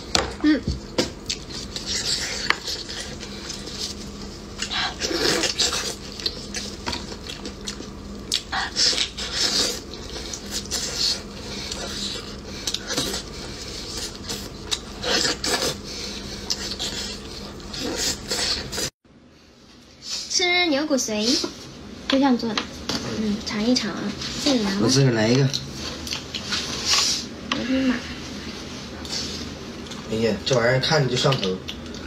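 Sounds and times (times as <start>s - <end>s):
eating sounds: 1.2s - 18.9s.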